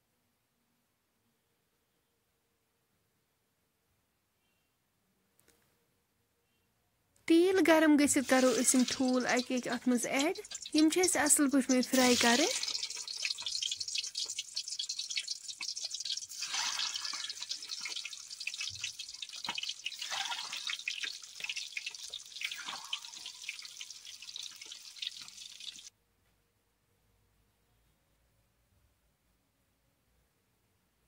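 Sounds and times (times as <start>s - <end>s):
eggs sizzling in hot oil: 7.4s - 25.9s
oil spitting: 8.1s - 25.9s.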